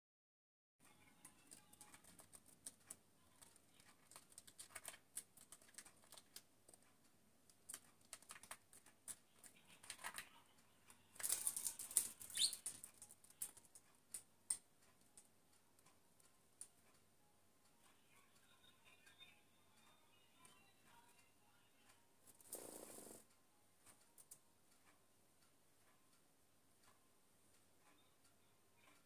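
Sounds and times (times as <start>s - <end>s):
bird wing flaps: 22.4s - 23.2s.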